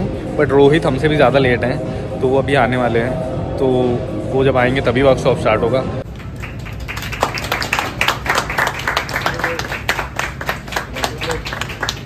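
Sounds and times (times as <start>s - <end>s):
people clapping: 6.1s - 12.0s.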